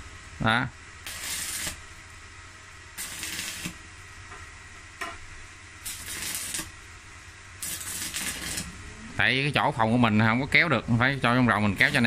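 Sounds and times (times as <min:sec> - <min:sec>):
stick welder arc crackling: 0:01.0 - 0:02.2, 0:02.9 - 0:04.4, 0:05.0 - 0:08.9, 0:11.1 - 0:12.0.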